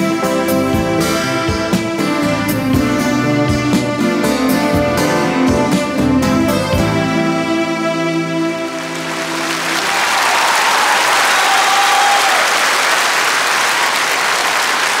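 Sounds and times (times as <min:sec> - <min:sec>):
audience applauding: 0:08.7 - 0:15.0.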